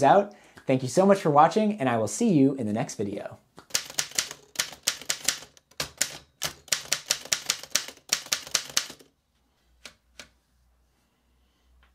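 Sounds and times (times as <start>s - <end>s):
typewriter clicks: 3.7s - 9.1s.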